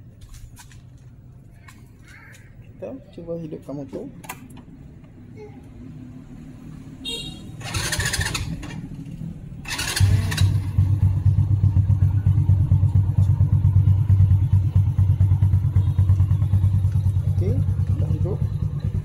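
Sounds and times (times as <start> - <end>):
starter motor cranking: 7.6 - 8.8, 9.7 - 10.6
small engine idling: 7.6 - 19.0.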